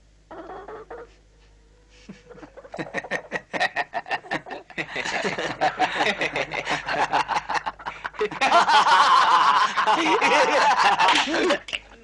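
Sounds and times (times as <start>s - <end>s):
man laughing wildly: 2.1s - 11.7s.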